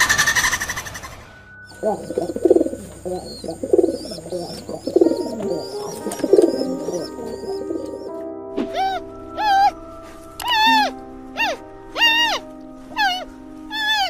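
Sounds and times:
background music: 0:00.0 - 0:14.0
pigeons cooing: 0:01.7 - 0:09.8.

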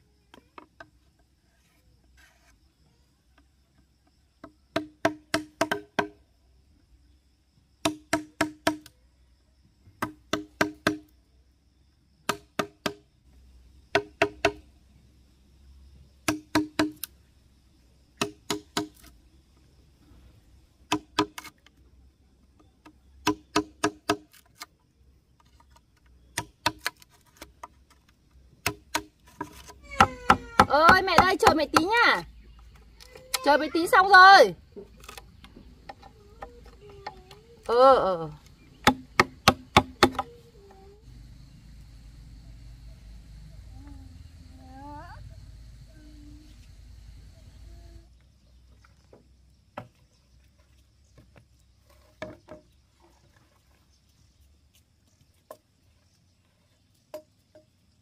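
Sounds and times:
tool striking wood: 0:04.7 - 0:06.1, 0:10.0 - 0:11.1, 0:16.2 - 0:17.1, 0:18.2 - 0:19.1, 0:23.2 - 0:24.3, 0:28.6 - 0:31.9, 0:38.8 - 0:40.3.

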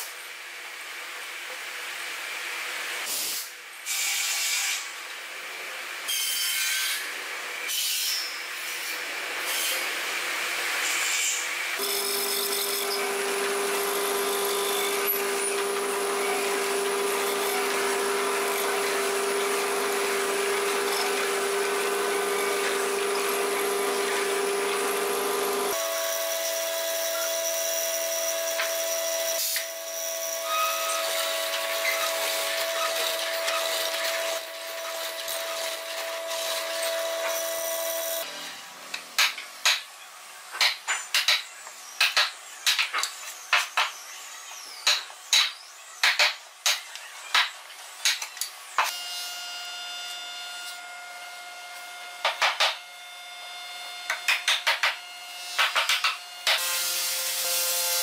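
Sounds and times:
boring machine cutting wood: 0:11.8 - 0:38.6, 0:48.8 - 0:58.0
hammer striking wood chisel: 0:52.2 - 0:52.8, 0:54.1 - 0:55.0, 0:55.6 - 0:56.6.

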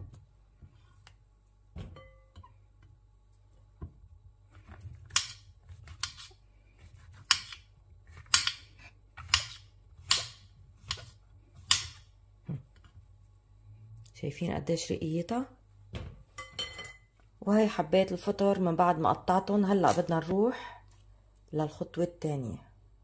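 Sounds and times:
knife slicing mushrooms: 0:05.1 - 0:12.0.

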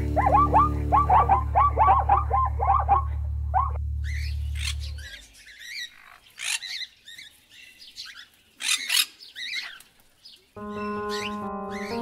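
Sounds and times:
high-pitched animal squawks and chirps: 0:00.2 - 0:06.9.

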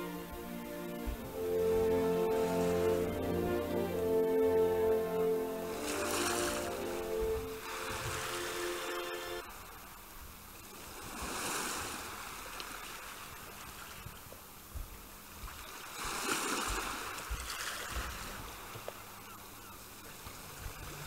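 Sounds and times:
held music note: 0:00.0 - 0:09.5
waves washing in: 0:00.0 - 0:09.7, 0:10.7 - 0:14.0, 0:15.5 - 0:19.2
soft low thumps: 0:00.1 - 0:01.6.

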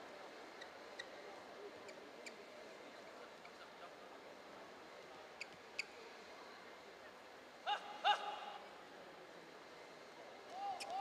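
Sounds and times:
faint crowd murmur: 0:00.0 - 0:11.0.

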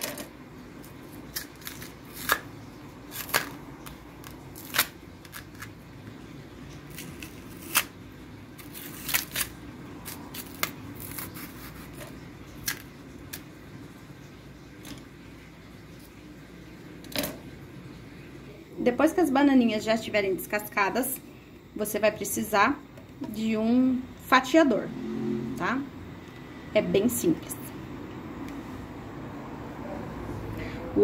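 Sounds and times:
plantain peel cracking and tearing: 0:00.8 - 0:05.8, 0:06.8 - 0:12.0, 0:12.6 - 0:13.5.

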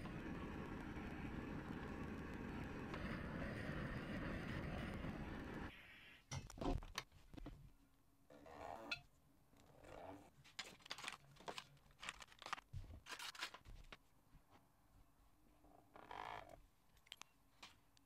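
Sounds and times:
gas torch running: 0:00.0 - 0:05.7.

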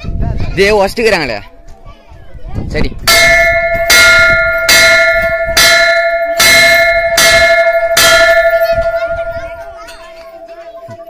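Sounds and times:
metal temple bell ringing: 0:03.1 - 0:11.0.

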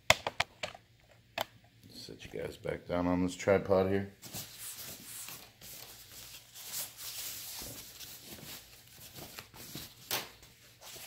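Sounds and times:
plastic bag rustling and crinkling: 0:04.2 - 0:11.0.

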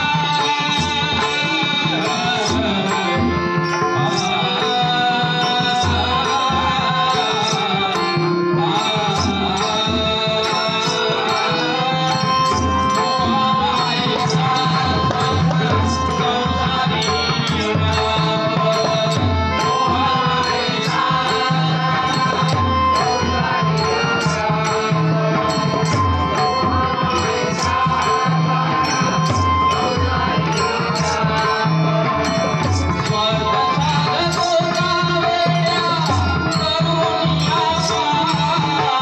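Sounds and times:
hand cymbals striking: 0:00.0 - 0:39.0
person singing into a microphone: 0:00.0 - 0:39.0.

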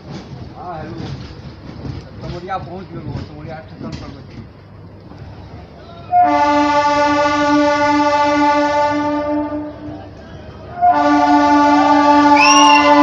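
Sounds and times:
train horn blast: 0:06.0 - 0:13.0.

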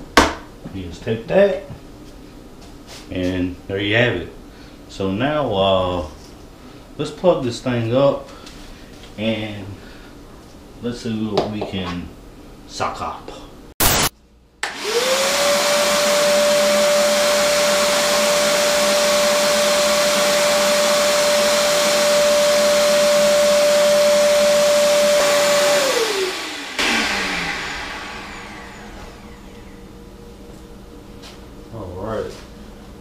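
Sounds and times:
shop vacuum motor whining: 0:14.6 - 0:30.0
air rushing at vacuum hose: 0:14.7 - 0:30.0.

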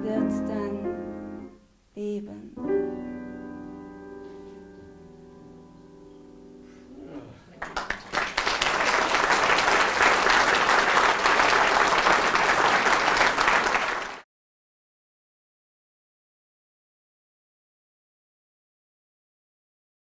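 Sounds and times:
piano chord: 0:02.5 - 0:06.8
audience applause: 0:07.6 - 0:14.2.

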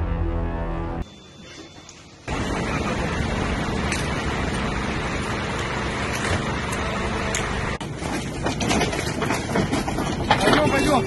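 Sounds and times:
fire truck engine humming: 0:01.1 - 0:10.4
scattered clicks and knocks: 0:07.4 - 0:11.0.

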